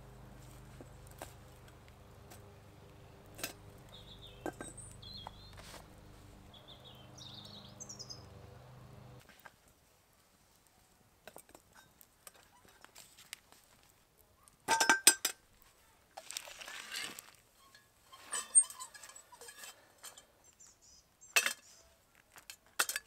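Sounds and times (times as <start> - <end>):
low steady hum: 0.0 - 9.2
campfire crackling: 0.0 - 14.7, 15.4 - 18.2
bird chirps: 3.8 - 5.8, 6.5 - 8.6, 20.4 - 21.9.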